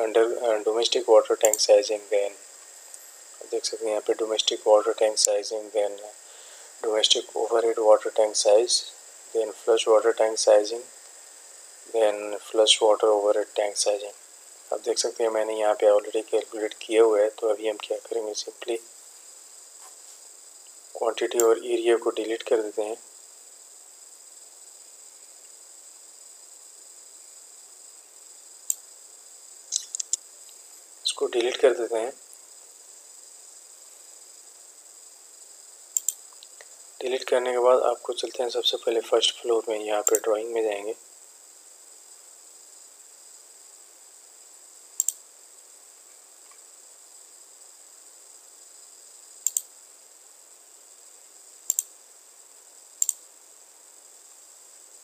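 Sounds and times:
high-pitched hiss with whining tones: 0:00.0 - 0:55.0
computer mouse click: 0:29.7 - 0:30.2, 0:36.0 - 0:36.5, 0:45.0 - 0:45.2, 0:49.4 - 0:49.7, 0:51.7 - 0:51.9, 0:53.0 - 0:53.2.

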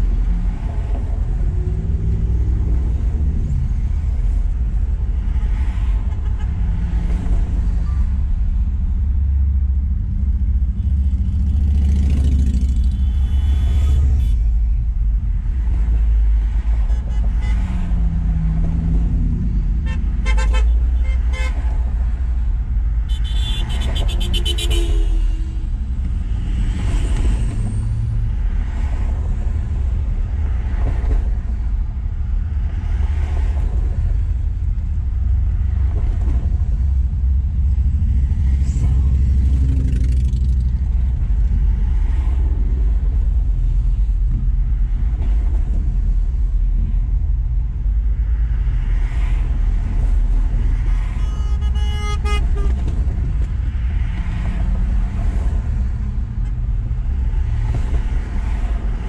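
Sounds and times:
highway traffic passing: 0:00.0 - 0:59.0
low traffic rumble: 0:00.0 - 0:59.0
car horn beeps: 0:19.8 - 0:21.6, 0:23.1 - 0:25.4, 0:51.0 - 0:53.0.

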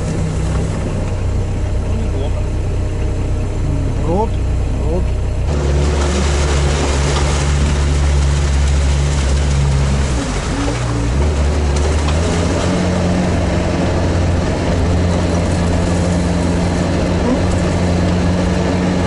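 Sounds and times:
vehicle engine under load: 0:00.0 - 0:19.0
water splashing: 0:05.5 - 0:19.0.

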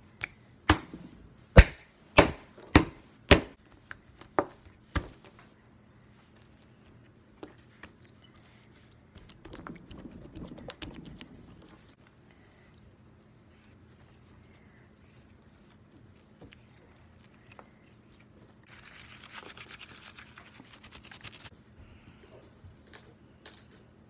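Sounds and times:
slime squishing and crackling: 0:06.3 - 0:12.0.

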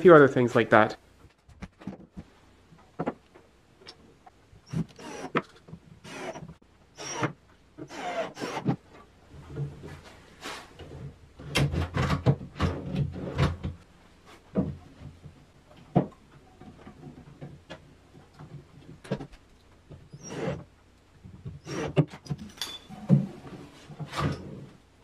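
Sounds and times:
cordless drill burst: 0:04.7 - 0:05.4, 0:06.1 - 0:06.4, 0:07.0 - 0:07.3
drawer sliding and knocking: 0:21.9 - 0:24.8.

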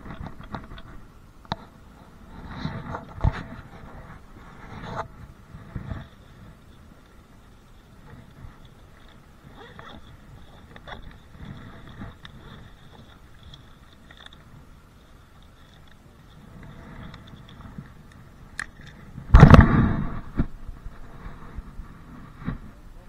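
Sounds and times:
faint rustling and handling: 0:00.0 - 0:19.3.

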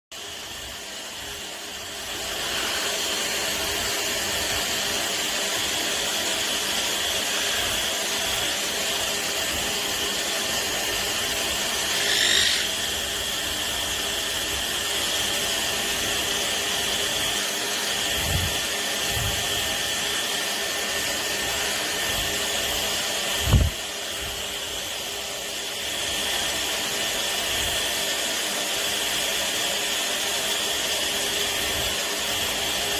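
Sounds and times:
hair dryer whirring: 0:00.2 - 0:32.9.

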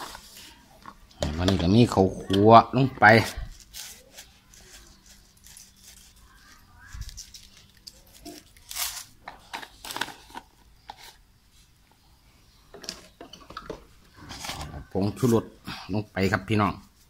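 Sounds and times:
packet rustling and crinkling: 0:03.4 - 0:11.2.

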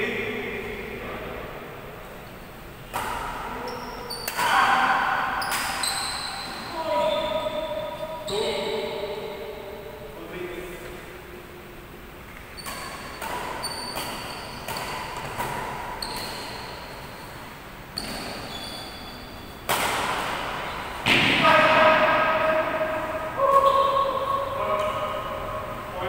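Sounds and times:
rackets hitting shuttlecock: 0:02.9 - 0:06.6, 0:12.6 - 0:19.0, 0:19.6 - 0:25.6
players calling out: 0:20.6 - 0:26.0.

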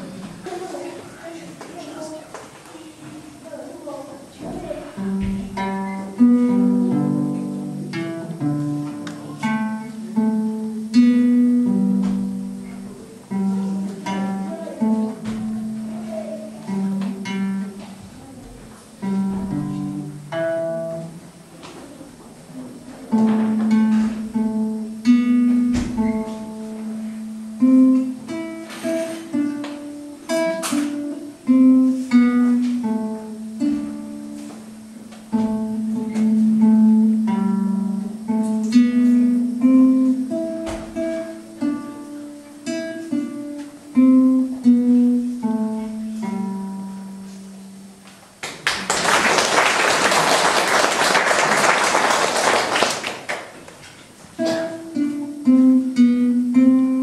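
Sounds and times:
acoustic guitar melody: 0:02.8 - 0:57.0
applause: 0:48.4 - 0:53.7.

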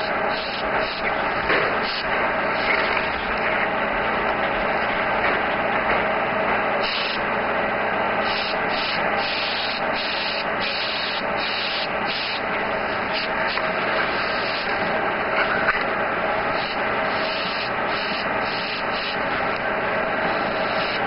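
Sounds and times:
airbrush hissing compressed air: 0:00.0 - 0:01.1, 0:01.8 - 0:02.1, 0:06.8 - 0:07.2, 0:08.2 - 0:14.7, 0:16.5 - 0:19.3, 0:20.3 - 0:21.0.

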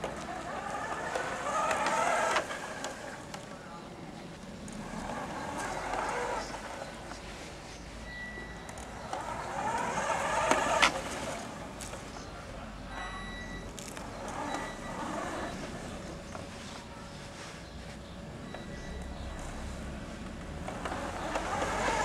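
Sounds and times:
toy car electric motor whirring: 0:00.0 - 0:03.2, 0:04.8 - 0:06.8, 0:09.1 - 0:11.5, 0:14.0 - 0:15.7, 0:20.6 - 0:22.0.

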